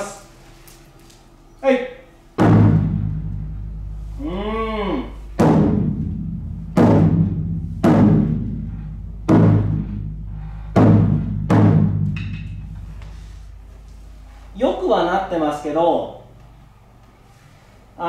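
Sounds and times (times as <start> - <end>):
drum struck with wooden sticks: 2.4 - 4.2, 5.3 - 13.6.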